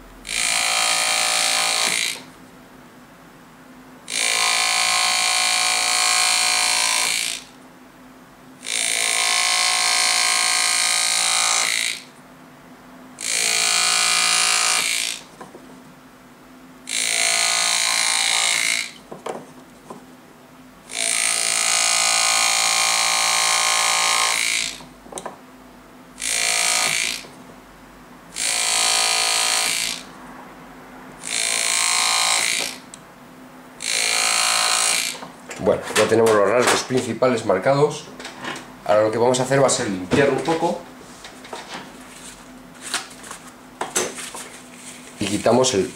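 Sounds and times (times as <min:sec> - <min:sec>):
engraving tool buzzing: 0:00.2 - 0:02.3, 0:04.1 - 0:07.6, 0:08.6 - 0:12.2, 0:13.2 - 0:15.4, 0:16.9 - 0:19.1, 0:20.9 - 0:24.9, 0:26.2 - 0:27.4, 0:28.3 - 0:30.1, 0:31.2 - 0:33.0, 0:33.8 - 0:35.4.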